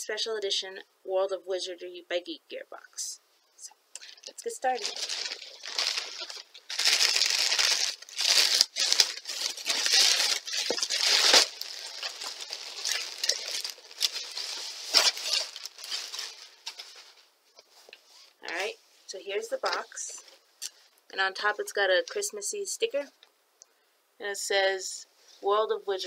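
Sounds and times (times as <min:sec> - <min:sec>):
plastic bag crinkling: 0:04.0 - 0:18.7.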